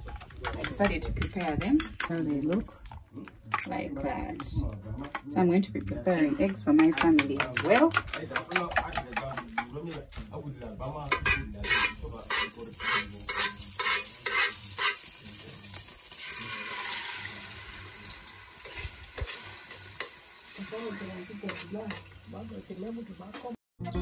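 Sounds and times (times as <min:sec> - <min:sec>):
spoon beating eggs in steel bowl: 0:00.1 - 0:03.8, 0:05.0 - 0:09.7, 0:11.1 - 0:15.1
frying sizzle in metal pan: 0:11.0 - 0:23.6.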